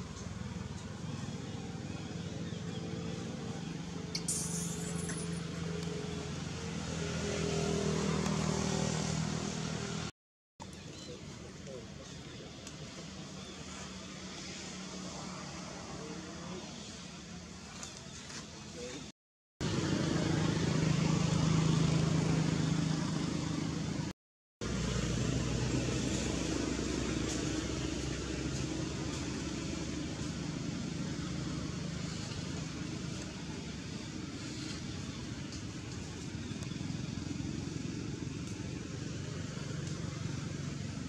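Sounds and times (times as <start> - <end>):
engine running: 19.6 - 41.0.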